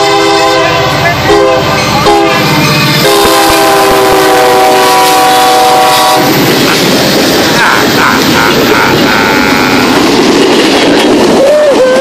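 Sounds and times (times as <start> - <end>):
locomotive air horn blasts: 0.0 - 6.4
train passing close by: 0.0 - 12.0.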